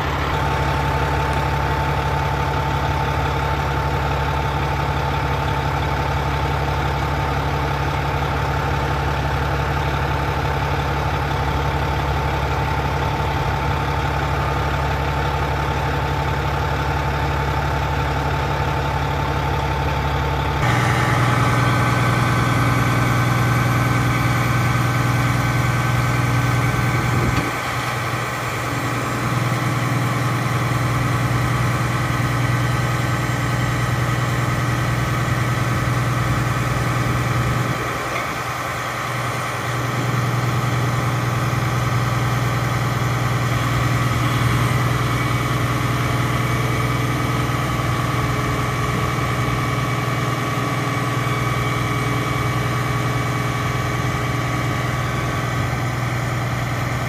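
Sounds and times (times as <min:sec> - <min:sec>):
diesel engine idling: 0:00.0 - 0:57.0
steady whine: 0:20.6 - 0:57.0.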